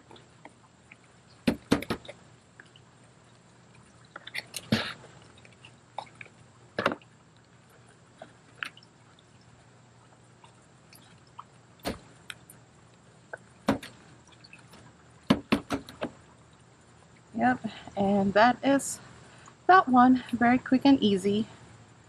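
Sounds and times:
short sharp knocks and taps: 0:01.5 - 0:02.1, 0:15.3 - 0:16.1.

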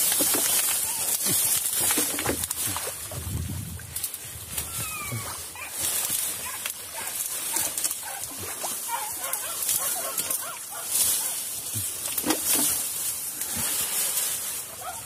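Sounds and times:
grass rustling against camera: 0:00.0 - 0:15.0
short animal cries: 0:04.6 - 0:05.4.

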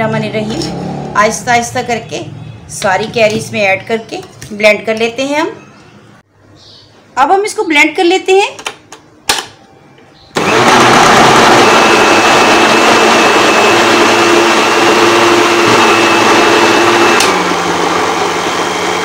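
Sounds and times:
blender click: 0:10.4 - 0:18.5
blender motor running: 0:10.4 - 0:19.0.

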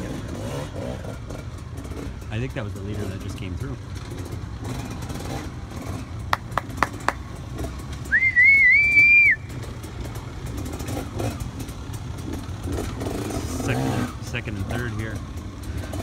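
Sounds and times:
loud wavering whistle: 0:08.1 - 0:09.5.

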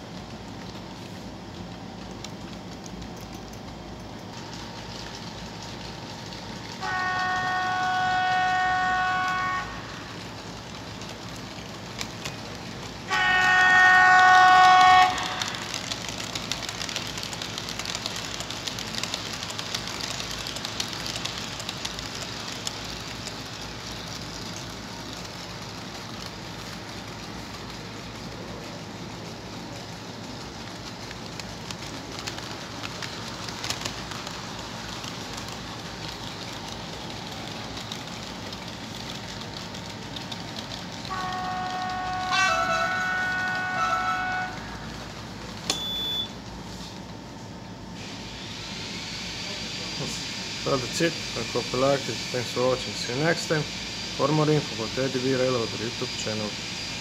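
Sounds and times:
model wagons rolling on track: 0:00.0 - 0:46.1, 0:49.6 - 0:56.6
model locomotive horn blasts: 0:06.8 - 0:10.2, 0:13.0 - 0:16.0, 0:41.1 - 0:45.0.

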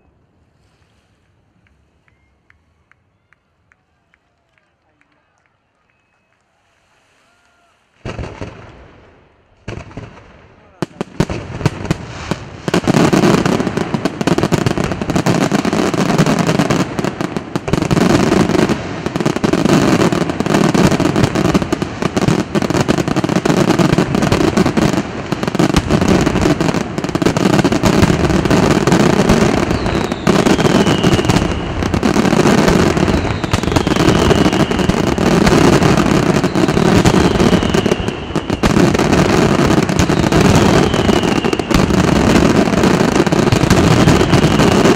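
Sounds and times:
fireworks bursting and crackling: 0:06.0 - 0:44.9
falling firework whistle: 0:29.0 - 0:42.7, 0:43.7 - 0:44.9.

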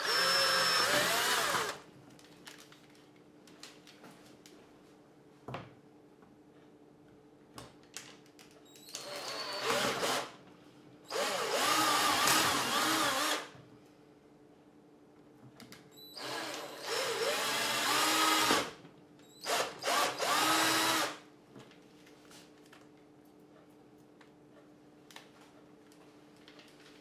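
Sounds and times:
cordless drill boring: 0:00.0 - 0:01.8, 0:09.0 - 0:10.3, 0:11.1 - 0:13.5, 0:16.2 - 0:18.7, 0:19.4 - 0:21.2.

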